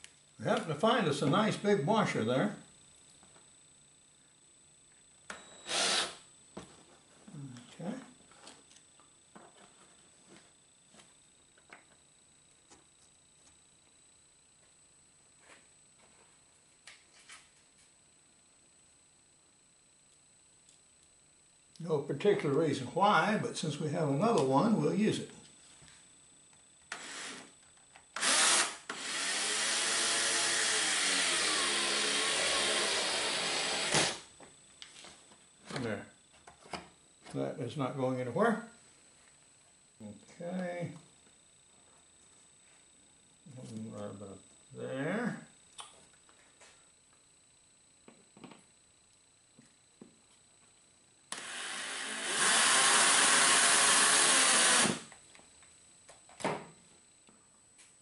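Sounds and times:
cordless drill whining: 0:05.3 - 0:06.2, 0:26.9 - 0:27.5, 0:28.2 - 0:34.3, 0:51.3 - 0:55.2.

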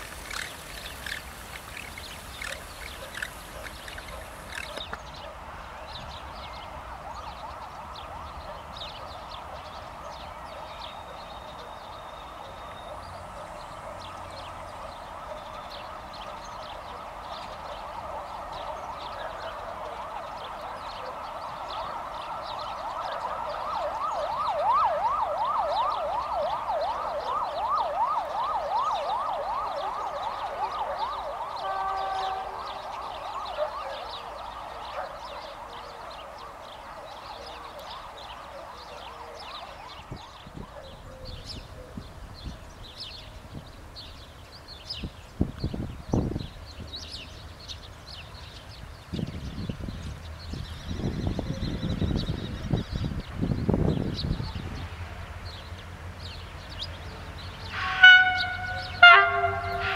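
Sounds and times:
emergency siren wailing and yelping: 0:10.6 - 0:40.8, 0:57.7 - 0:59.9.

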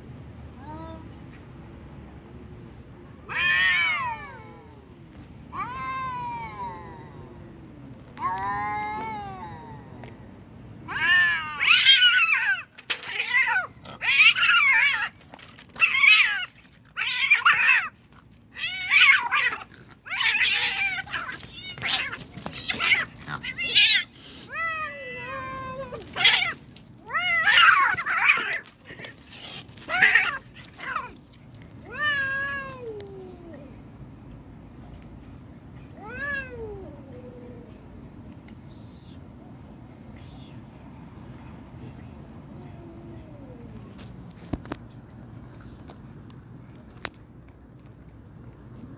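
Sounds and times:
cats yowling and caterwauling: 0:03.2 - 0:10.2, 0:10.8 - 0:33.9, 0:35.9 - 0:37.9, 0:42.4 - 0:44.1.

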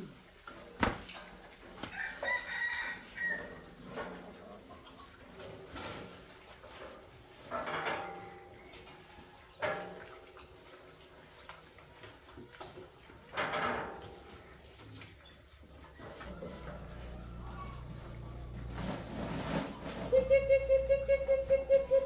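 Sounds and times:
metal feeder clank: 0:06.8 - 0:08.6, 0:13.3 - 0:14.3.

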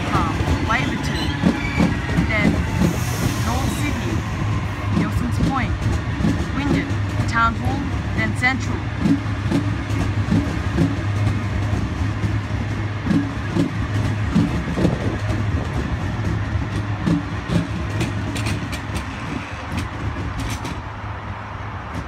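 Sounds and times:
electric train humming: 0:00.0 - 0:22.0
wheels thumping over rail joints: 0:04.5 - 0:21.0.

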